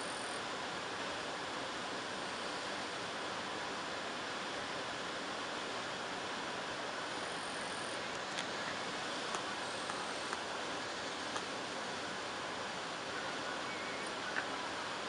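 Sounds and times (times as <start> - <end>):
waterfall rushing: 2.7 - 15.0
faint ticks: 8.1 - 10.5.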